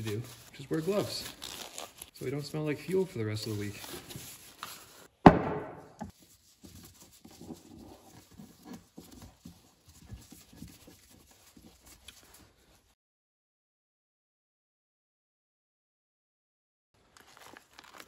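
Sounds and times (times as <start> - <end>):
loud knock: 5.2 - 6.0
faint clicks and scrapes: 6.1 - 12.9.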